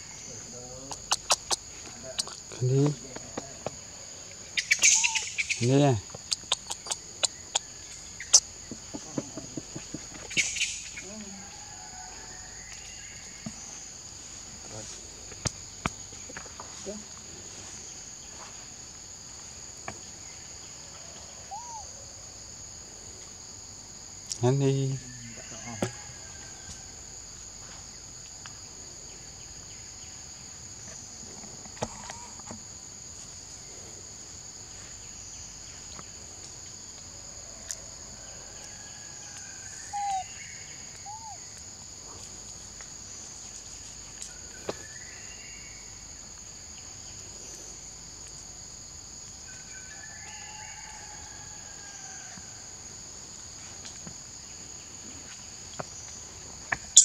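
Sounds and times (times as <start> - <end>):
faint bird calls: 0.0 - 13.5, 21.0 - 22.0, 38.9 - 41.6
high insect drone: 0.0 - 57.0.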